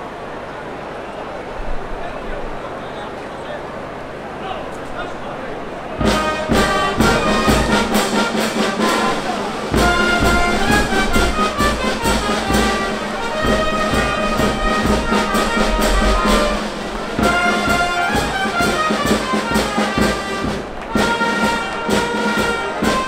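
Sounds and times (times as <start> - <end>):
brass band playing: 6.0 - 23.0.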